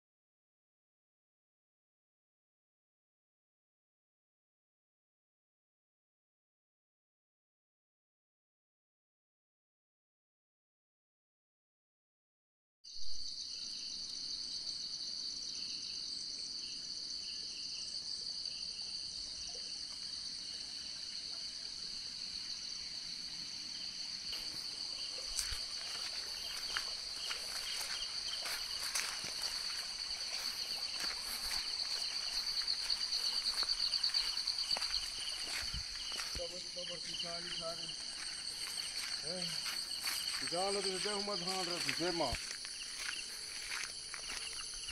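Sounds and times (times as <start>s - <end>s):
insects trilling: 13.1s - 44.9s.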